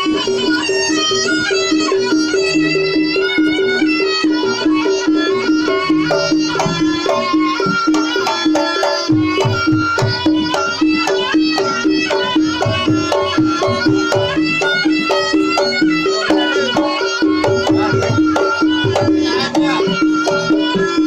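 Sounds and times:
shrill reed melody: 0.9s - 21.0s
drum strokes: 4.8s - 21.0s.

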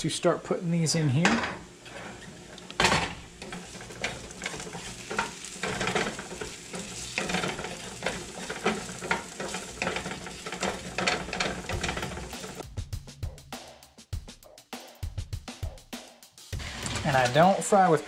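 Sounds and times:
mushrooms sizzling in a skillet: 0.9s - 12.6s, 16.6s - 18.0s
spatula scraping a skillet: 1.8s - 12.6s, 16.6s - 17.8s.

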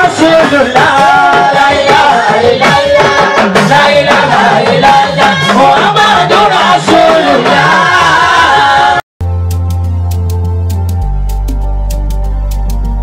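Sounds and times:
hand percussion: 0.0s - 7.8s, 9.2s - 13.0s
man singing over loudspeakers: 0.0s - 9.0s
talking drum: 0.0s - 13.0s.

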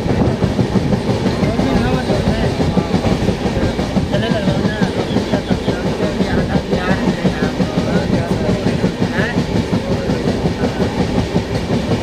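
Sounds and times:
train carriage rumbling rattle: 0.0s - 12.0s
wheels clacking over rails: 0.0s - 12.0s.

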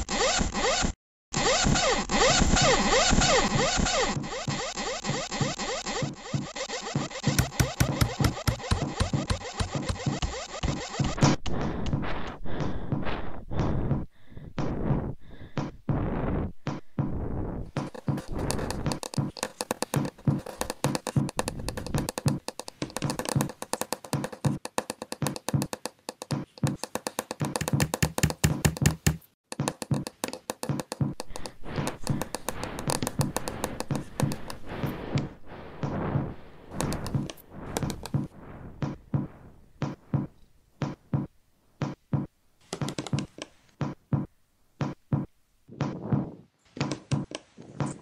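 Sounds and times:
rapid layered knocks and taps: 3.8s - 12.0s, 17.7s - 36.0s, 36.7s - 46.2s.

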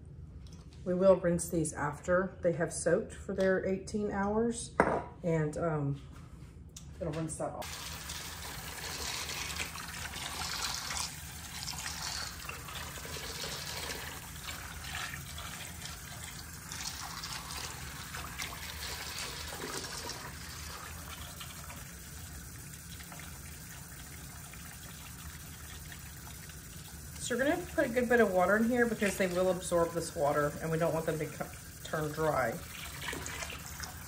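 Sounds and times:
water trickling into bowl: 7.6s - 34.0s.

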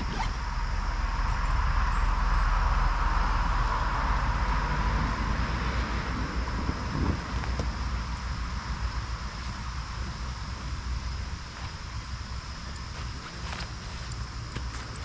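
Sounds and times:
low wind rumble on microphone: 0.0s - 15.0s.

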